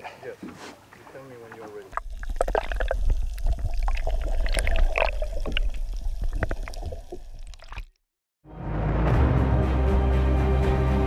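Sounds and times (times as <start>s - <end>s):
underwater rumble of moving water: 1.5s - 7.8s
bubbly clicks and pops: 1.8s - 8.0s.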